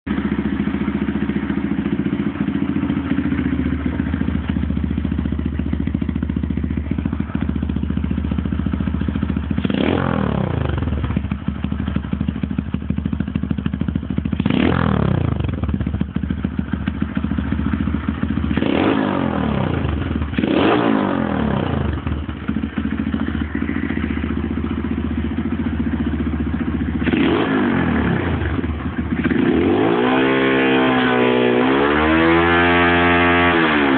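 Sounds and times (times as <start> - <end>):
mini bike engine idling and revving: 0.1 - 33.9.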